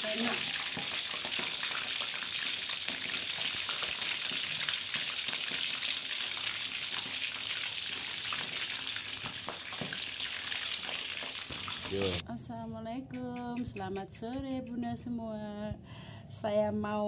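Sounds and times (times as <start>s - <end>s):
fish sizzling in hot oil: 0.0s - 12.2s.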